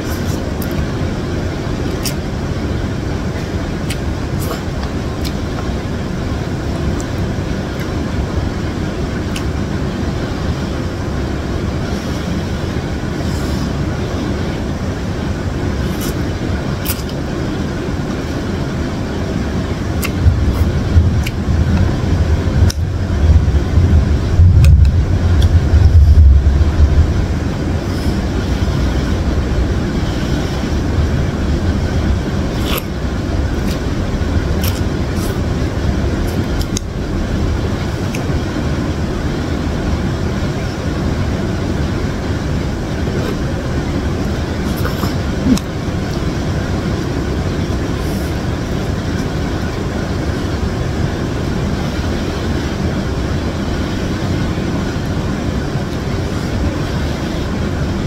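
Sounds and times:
low rumbling background noise: 0:00.0 - 0:58.0
utensils clicking while eating: 0:01.9 - 0:02.2, 0:34.6 - 0:35.4.

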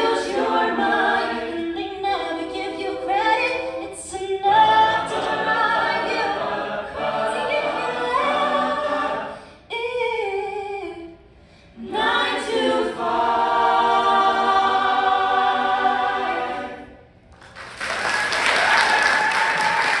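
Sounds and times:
a cappella choir singing: 0:00.0 - 0:17.2
audience applause: 0:17.4 - 0:20.0.

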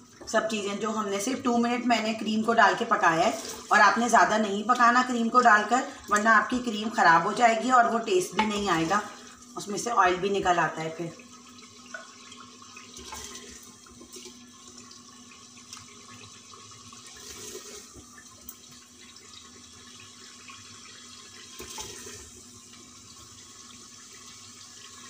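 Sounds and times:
oil sizzling and bubbling: 0:00.0 - 0:25.0.

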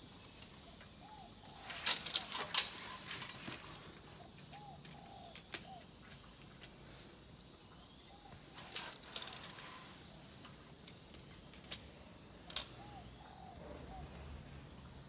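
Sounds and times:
dove cooing: 0:00.6 - 0:06.0, 0:12.0 - 0:15.0.

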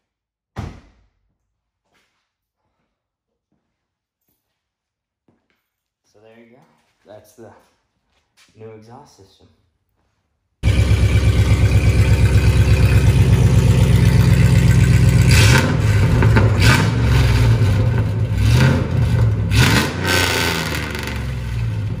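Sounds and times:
v eight engine idling and revving: 0:10.6 - 0:22.0.

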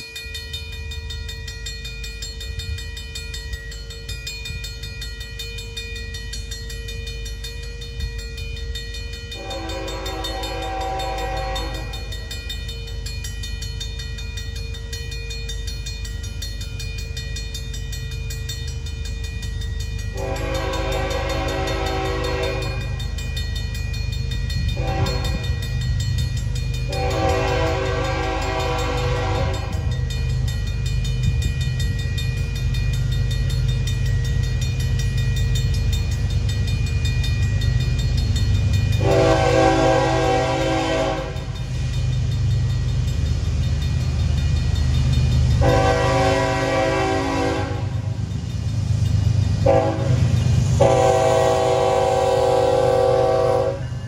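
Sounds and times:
crossing bell ringing: 0:00.0 - 0:54.0
deep locomotive rumble: 0:00.0 - 0:54.0
locomotive air horn blasts: 0:09.4 - 0:12.1, 0:20.1 - 0:23.0, 0:24.8 - 0:25.6, 0:26.9 - 0:29.9, 0:39.0 - 0:41.5, 0:45.6 - 0:48.1, 0:49.6 - 0:53.9.

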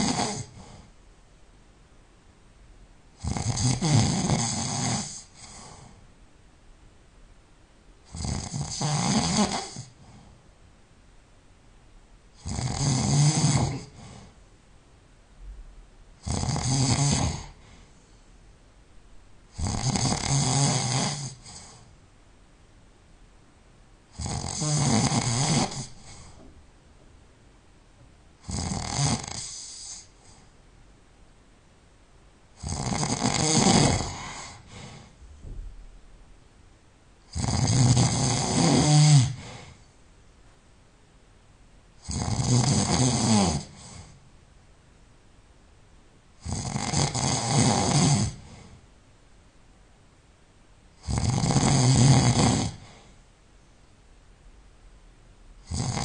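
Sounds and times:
person snoring: 0:00.0 - 0:00.9, 0:03.2 - 0:05.9, 0:08.1 - 0:10.0, 0:12.4 - 0:14.4, 0:16.2 - 0:17.9, 0:19.5 - 0:21.9, 0:24.1 - 0:26.4, 0:28.4 - 0:30.4, 0:32.6 - 0:35.2, 0:37.3 - 0:39.8, 0:42.0 - 0:44.2, 0:46.4 - 0:48.8, 0:51.0 - 0:53.2, 0:55.6 - 0:56.0
quiet breathing: 0:00.0 - 0:01.3, 0:04.4 - 0:06.2, 0:08.0 - 0:10.6, 0:13.4 - 0:14.7, 0:16.5 - 0:18.6, 0:19.4 - 0:22.0, 0:24.1 - 0:26.7, 0:29.1 - 0:30.8, 0:33.8 - 0:35.6, 0:38.4 - 0:40.2, 0:43.6 - 0:44.4, 0:48.0 - 0:49.0, 0:52.6 - 0:54.0.

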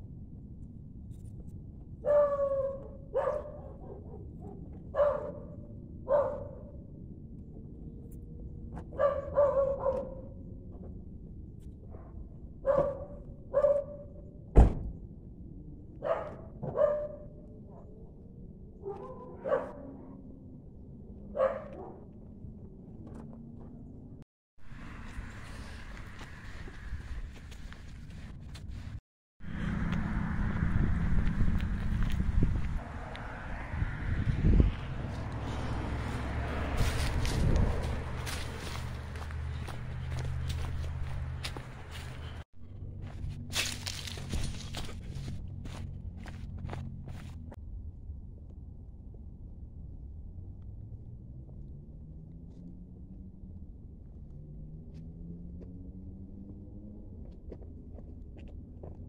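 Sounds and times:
dog barking: 0:02.0 - 0:06.7, 0:08.9 - 0:10.4, 0:12.6 - 0:14.2, 0:16.0 - 0:17.9, 0:18.8 - 0:20.0, 0:21.3 - 0:22.0
footsteps outdoors: 0:21.5 - 0:33.3, 0:34.2 - 0:47.6, 0:54.7 - 0:59.0.

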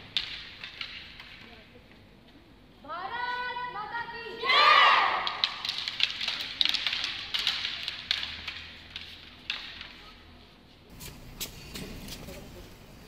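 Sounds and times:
wooden sticks knocking: 0:00.0 - 0:01.6, 0:05.2 - 0:10.0.

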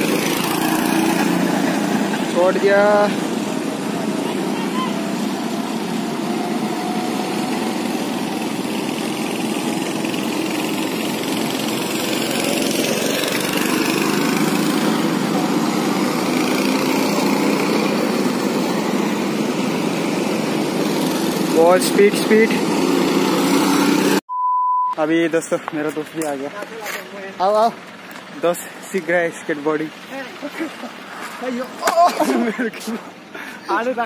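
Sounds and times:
go-kart engines droning: 0:00.0 - 0:24.2.

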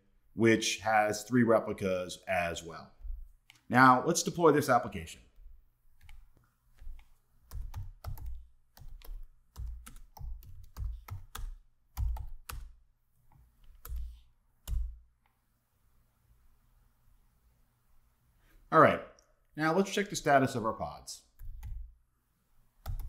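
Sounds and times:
typing on computer keyboard: 0:06.8 - 0:12.8, 0:13.7 - 0:15.0, 0:21.4 - 0:21.9.

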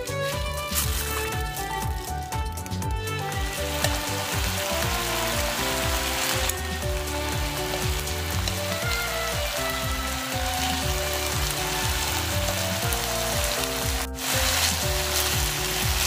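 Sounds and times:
slow melodic background music: 0:00.0 - 0:16.0
meat sizzling in frying pan: 0:03.2 - 0:16.0.

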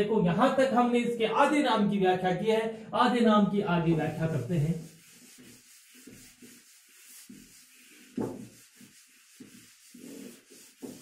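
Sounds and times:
eraser rubbing on whiteboard: 0:04.0 - 0:11.0.

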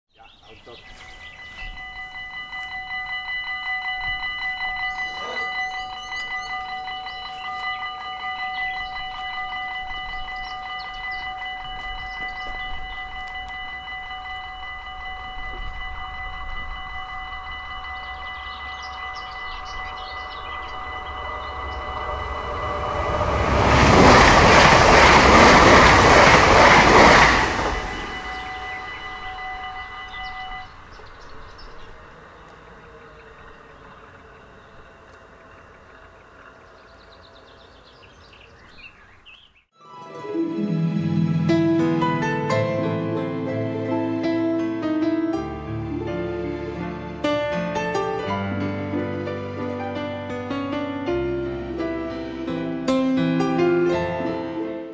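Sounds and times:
train passing: 0:00.5 - 0:54.9
level crossing bells ringing: 0:00.6 - 0:36.1.

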